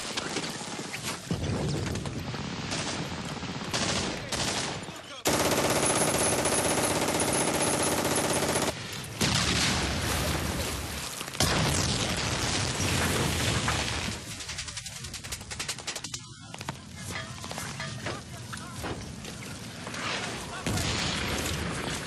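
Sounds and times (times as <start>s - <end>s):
machine-gun and rifle fire: 2.0s - 8.8s.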